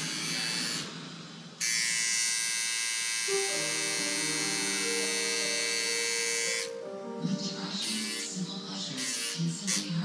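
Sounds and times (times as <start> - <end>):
tattoo machine buzzing: 0.0 - 1.0, 1.6 - 6.8, 7.8 - 8.4, 9.0 - 9.9.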